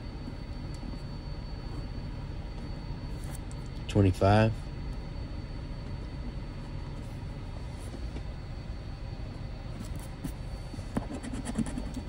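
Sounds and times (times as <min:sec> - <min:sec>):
steady low rumble: 0:00.0 - 0:11.0
coin scraping scratch card: 0:11.1 - 0:12.0.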